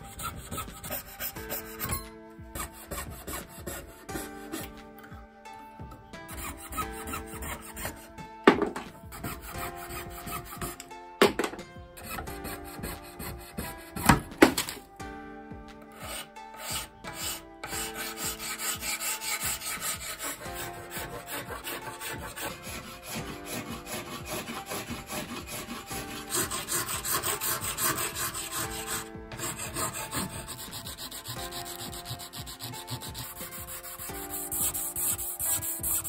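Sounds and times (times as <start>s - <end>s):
sandpaper rasping on plastic: 0.0s - 2.0s, 2.6s - 4.7s, 6.3s - 8.1s, 9.1s - 10.8s, 16.0s - 36.0s
hand file filing plastic: 0.0s - 4.8s, 6.3s - 11.4s, 12.0s - 14.8s, 15.9s - 36.0s.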